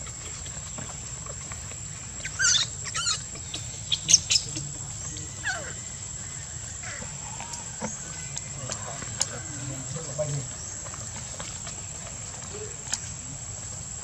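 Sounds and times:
baby monkey squealing: 0:02.2 - 0:04.6.

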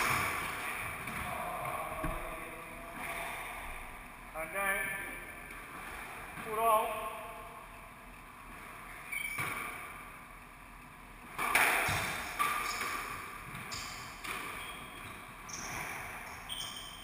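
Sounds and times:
squash ball strikes: 0:11.3 - 0:14.5.

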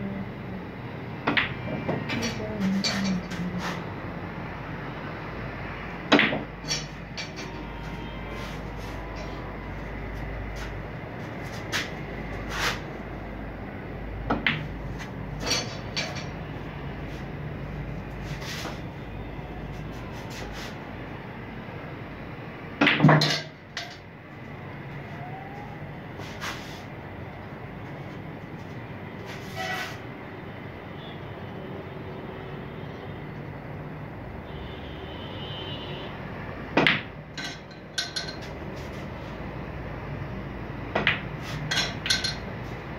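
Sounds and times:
snooker balls clicking: 0:41.0 - 0:42.5.

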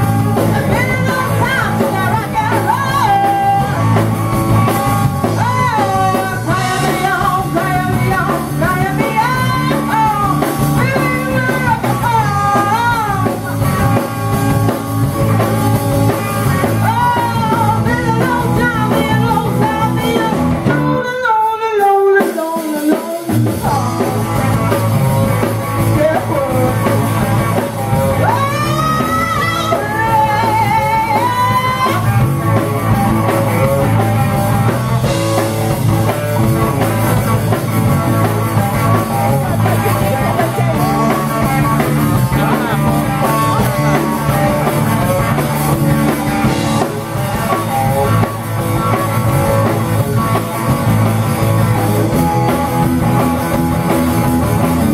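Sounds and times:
rock band playing: 0:00.0 - 0:54.9
woman singing: 0:00.4 - 0:04.0, 0:05.2 - 0:14.0, 0:16.5 - 0:24.4, 0:25.8 - 0:32.3, 0:39.7 - 0:44.8.

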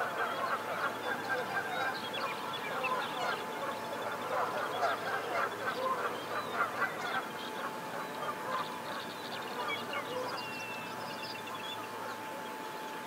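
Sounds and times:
geese honking: 0:00.0 - 0:10.5
ducks calling: 0:00.0 - 0:10.9.

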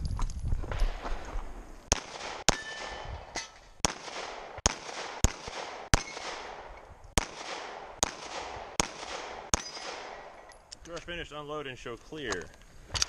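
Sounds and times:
pistol shots: 0:00.9 - 0:10.5.

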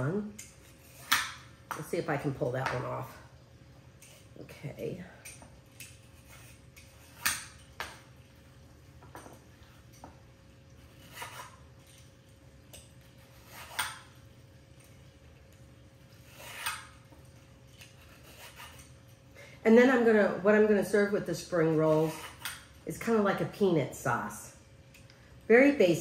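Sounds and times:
peeler scraping carrot: 0:05.8 - 0:07.6, 0:10.8 - 0:11.7, 0:13.0 - 0:14.1, 0:16.0 - 0:17.1, 0:17.7 - 0:19.1, 0:21.3 - 0:22.7.

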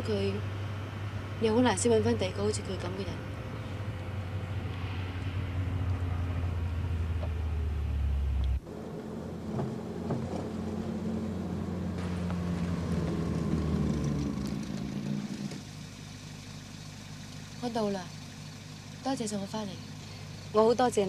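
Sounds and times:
car engine drone from cabin: 0:00.0 - 0:21.0
car driving up: 0:03.3 - 0:19.1.

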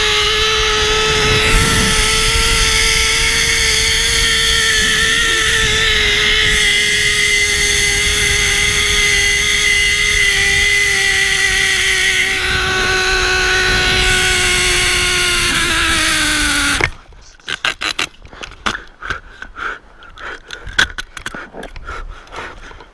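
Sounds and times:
zipline pulley whining on cable: 0:00.0 - 0:17.0
wind noise: 0:00.0 - 0:17.2.

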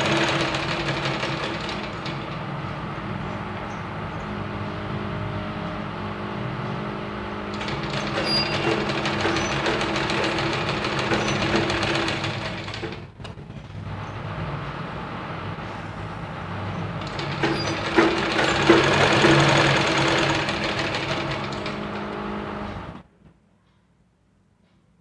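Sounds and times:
sewing machine stitching: 0:00.0 - 0:02.5, 0:07.5 - 0:14.4, 0:16.9 - 0:23.0.

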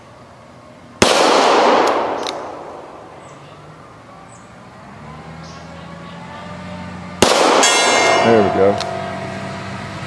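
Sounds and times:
revolver shot echoing: 0:01.0 - 0:03.4, 0:07.2 - 0:09.5.

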